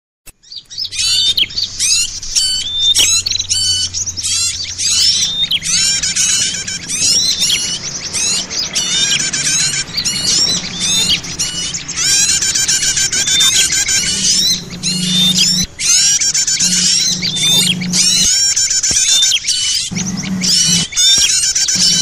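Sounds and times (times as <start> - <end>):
songbirds chirping chorus: 0.4 - 22.0.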